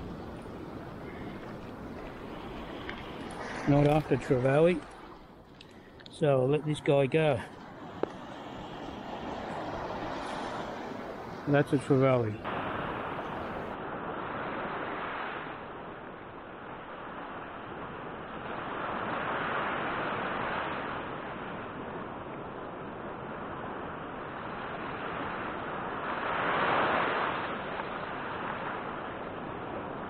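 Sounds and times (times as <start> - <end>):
small waves washing up a beach: 0.0 - 30.0.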